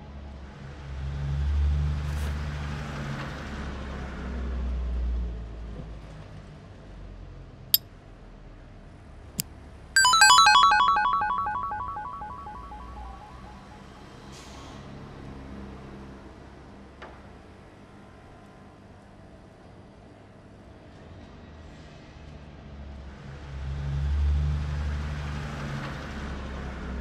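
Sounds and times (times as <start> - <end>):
flurry of bright chiming notes: 10.0 - 13.8
cartoon music: 10.0 - 13.9.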